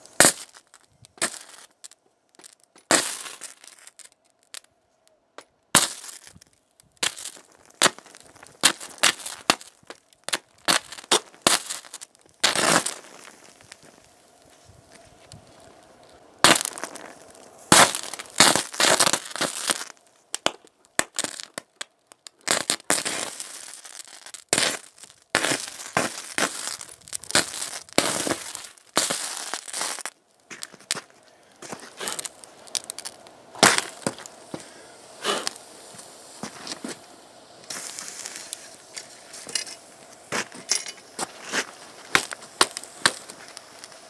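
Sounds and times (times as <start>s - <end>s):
electric arc crackling and sputtering: 5.8s - 14.1s, 16.4s - 31.0s, 32.0s - 34.5s, 41.1s - 44.0s.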